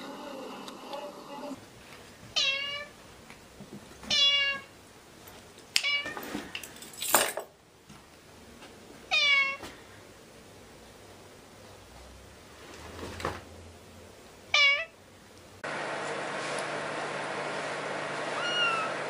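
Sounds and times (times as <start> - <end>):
cat meowing: 2.4 - 2.9, 4.1 - 4.7, 9.1 - 9.6, 14.5 - 15.0, 18.3 - 19.0.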